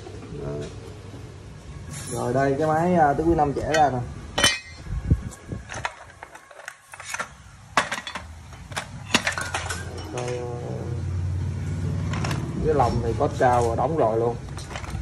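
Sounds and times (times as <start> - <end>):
metal parts clinking in tray: 3.6 - 4.8, 5.7 - 10.4, 14.5 - 15.0.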